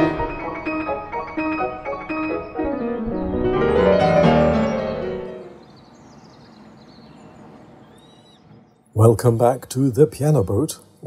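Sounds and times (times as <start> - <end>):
solo classical piano: 0.0 - 5.9.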